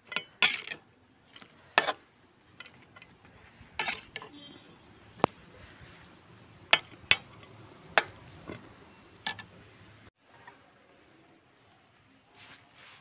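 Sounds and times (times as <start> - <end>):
metal ladle clinking on a pan: 0.0 - 2.0, 2.6 - 4.4, 6.7 - 8.2.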